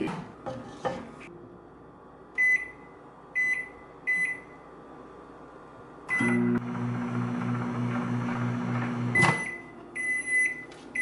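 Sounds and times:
microwave humming: 2.4 - 11.0
microwave keypad beeps: 9.2 - 11.0.

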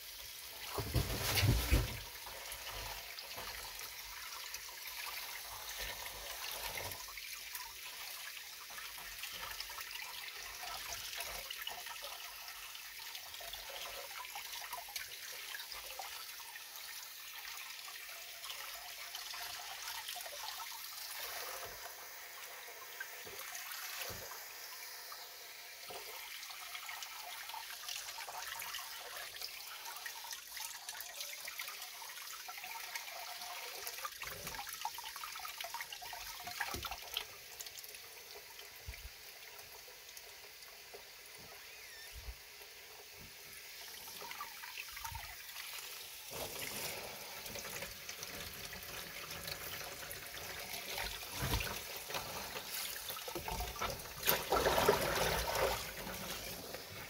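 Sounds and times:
tap water splashing: 0.6 - 2.1, 36.4 - 37.3, 50.8 - 56.8.

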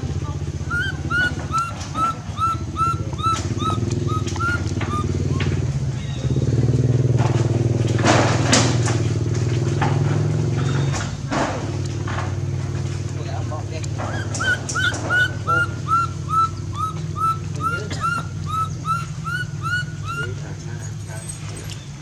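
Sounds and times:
engine humming: 0.0 - 22.0.

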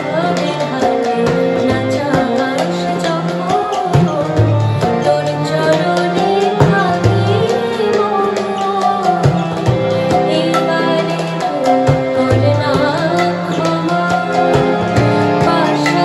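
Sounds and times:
harmonium: 0.0 - 16.0
tabla drumming: 0.0 - 16.0
woman singing: 0.0 - 16.0.

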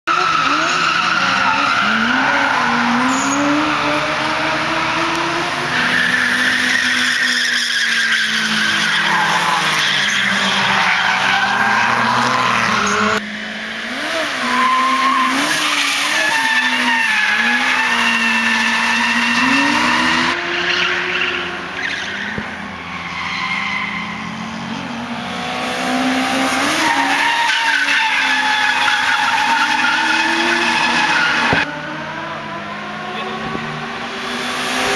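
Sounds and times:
car engine revving: 0.1 - 34.9
tyres squealing: 26.6 - 31.6.

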